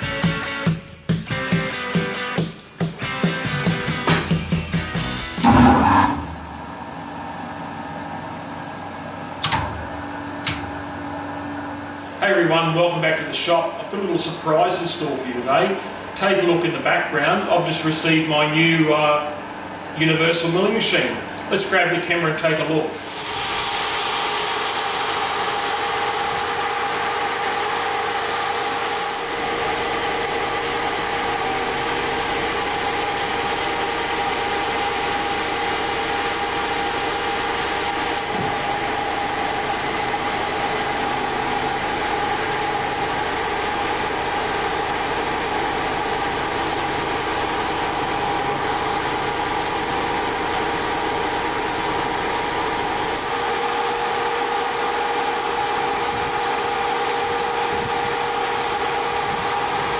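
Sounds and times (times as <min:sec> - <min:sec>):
truck engine idling: 0:03.6 - 0:12.2, 0:23.0 - 0:59.9
crane hum: 0:04.9 - 0:13.0, 0:22.6 - 0:59.9.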